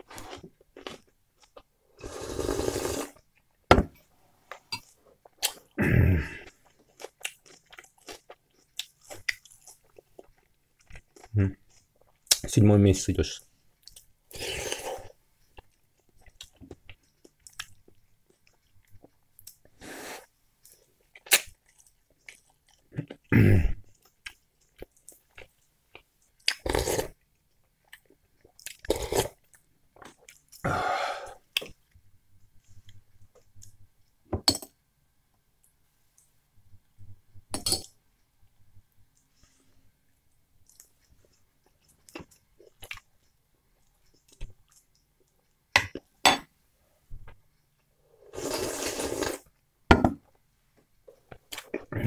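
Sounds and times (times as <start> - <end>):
wet chewing and mouth noises: 6.4 - 12.5, 14.8 - 19.8, 20.6 - 30.6, 40.6 - 46.1.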